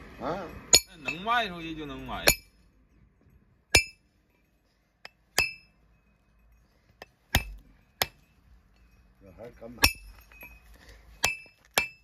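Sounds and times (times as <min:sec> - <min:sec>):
hammer ringing on steel shoe: 0:00.7 - 0:01.5, 0:02.2 - 0:02.6, 0:03.7 - 0:04.1, 0:05.0 - 0:06.2, 0:07.0 - 0:10.6, 0:11.2 - 0:12.0.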